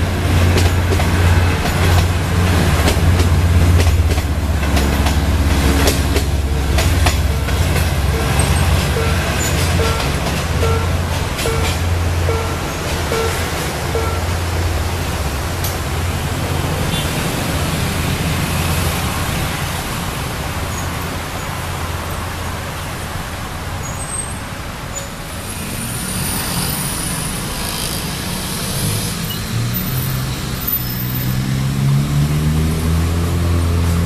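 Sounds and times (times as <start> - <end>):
vehicle engines idling: 0.0 - 25.9
diesel engine revving: 31.2 - 34.0.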